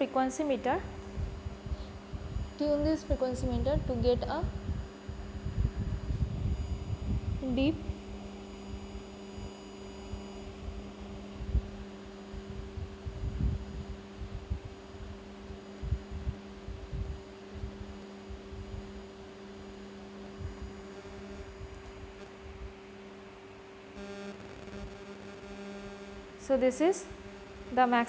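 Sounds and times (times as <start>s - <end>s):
electrical hum: 0.0s - 28.0s.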